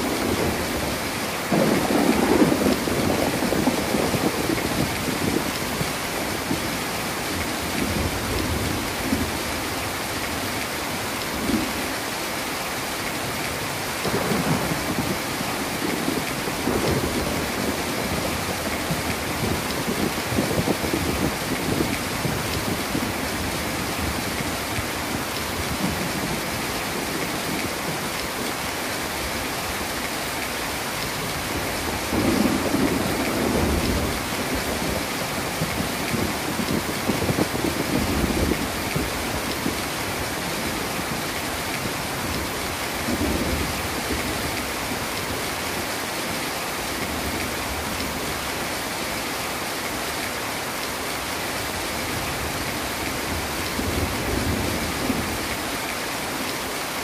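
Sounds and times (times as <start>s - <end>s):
low thunder rumbling: 0.0s - 6.7s, 14.0s - 28.1s, 31.2s - 45.4s
heavy rain pouring: 0.0s - 57.0s.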